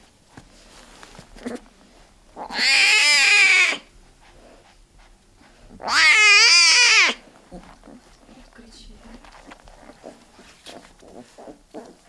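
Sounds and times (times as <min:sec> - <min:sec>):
tiger cub crying: 0:02.4 - 0:03.9, 0:05.8 - 0:07.2.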